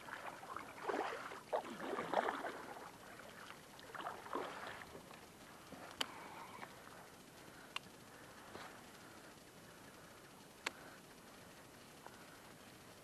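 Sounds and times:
paddle splashing in water: 0.0s - 4.9s.

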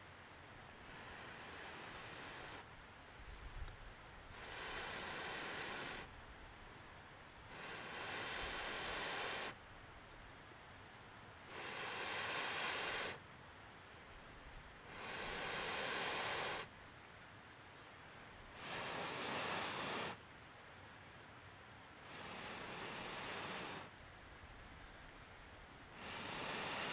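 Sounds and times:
person blowing breaths: 0.9s - 2.6s, 4.3s - 6.1s, 7.5s - 9.6s, 11.5s - 13.2s, 14.9s - 16.7s, 18.6s - 20.2s, 22.0s - 23.9s, 25.9s - 26.9s.

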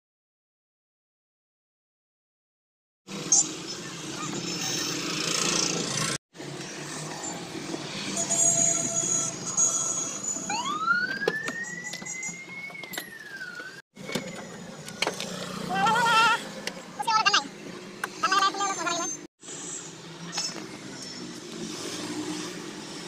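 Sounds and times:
rising and falling high tone: 7.2s - 14.9s.

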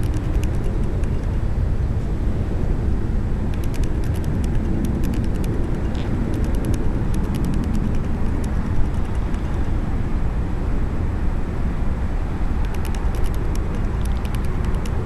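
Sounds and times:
faint high ticks: 0.0s - 1.4s, 3.5s - 9.8s, 12.6s - 15.0s
low outdoor rumble: 0.0s - 15.0s.

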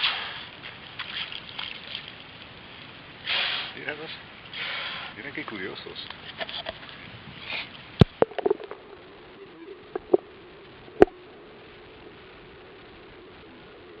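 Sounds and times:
underwater splashing: 0.0s - 3.8s, 7.9s - 12.6s.

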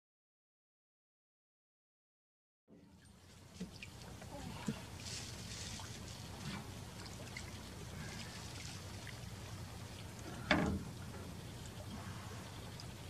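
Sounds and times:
water lapping against boat hull: 2.7s - 13.0s.

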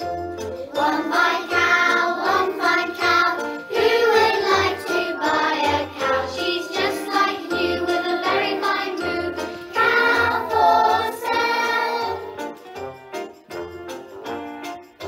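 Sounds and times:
children singing: 0.6s - 12.4s
instrumental music with steady beat: 7.1s - 15.0s.

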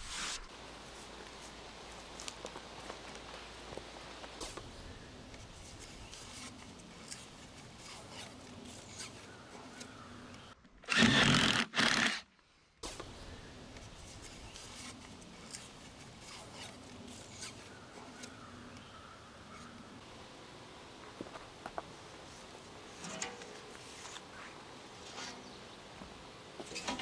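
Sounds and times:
cordless drill running: 10.9s - 12.2s.

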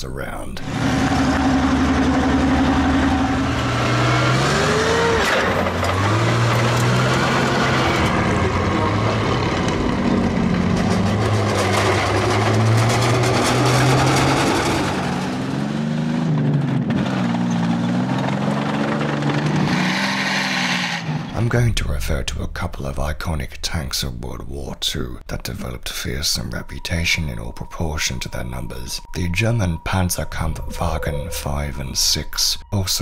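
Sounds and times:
tank engine revving: 0.6s - 23.0s
clanking steel tracks: 5.0s - 15.4s.

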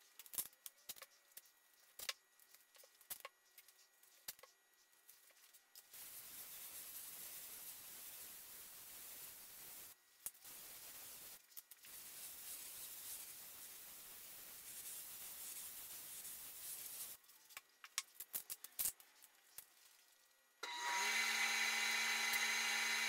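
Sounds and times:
air spray gun hissing: 20.6s - 23.0s.

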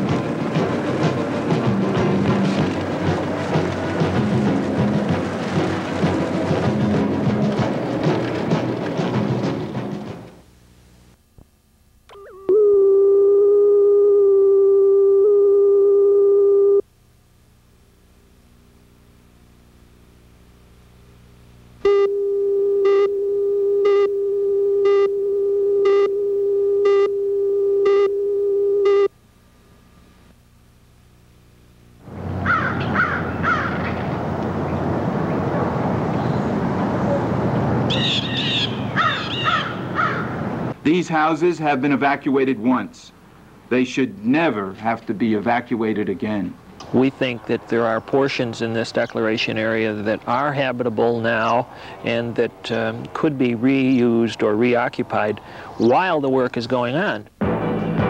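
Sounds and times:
car driving slowly: 0.0s - 10.8s
tape hiss: 0.0s - 32.4s, 40.5s - 58.0s
steady electronic tone: 12.1s - 16.9s, 21.8s - 29.2s
crows cawing: 32.4s - 34.0s, 37.9s - 40.5s.

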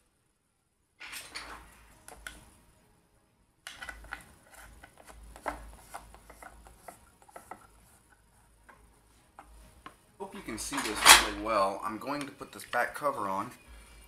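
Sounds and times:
screwdriver clicking and scraping metal: 3.7s - 5.6s.

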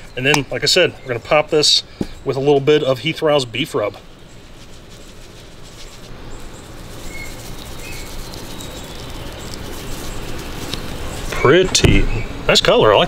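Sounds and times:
low outdoor rumble: 0.0s - 13.0s
spice shaker rattling: 4.0s - 11.4s.

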